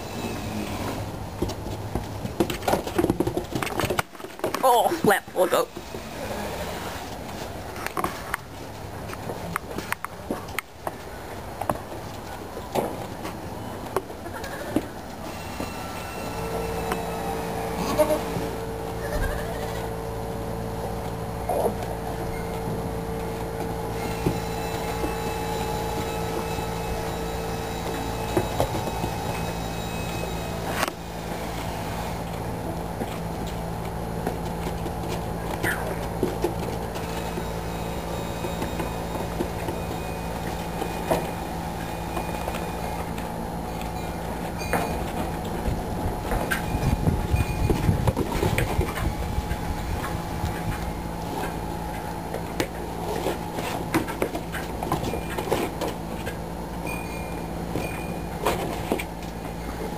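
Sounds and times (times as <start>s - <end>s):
steady mechanical hum: 0.0s - 59.9s.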